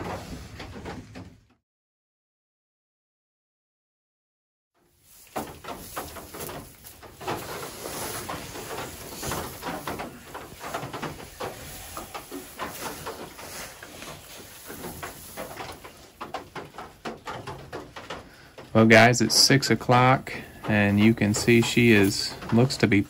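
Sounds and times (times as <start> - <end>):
straw rustling and crackling: 4.9 - 23.0.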